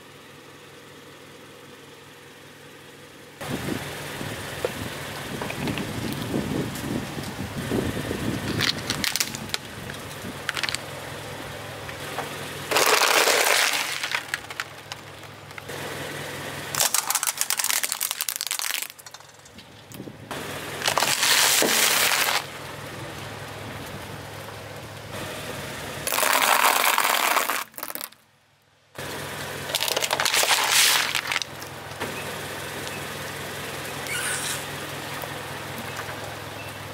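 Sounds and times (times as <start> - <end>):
car engine idling: 0.0 - 27.0, 27.7 - 36.9
tyre crushing toys: 12.7 - 15.7, 16.7 - 19.5, 20.8 - 22.5, 26.1 - 28.2, 29.7 - 31.5.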